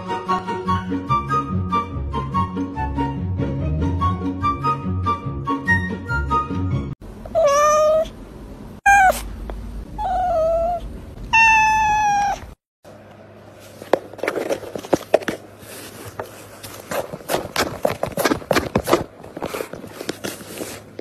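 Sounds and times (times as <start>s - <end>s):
low steady hum: 7.0s - 21.0s
cat meowing: 7.3s - 8.1s, 8.9s - 9.3s, 10.0s - 12.6s
clicks and rustles: 13.6s - 21.0s.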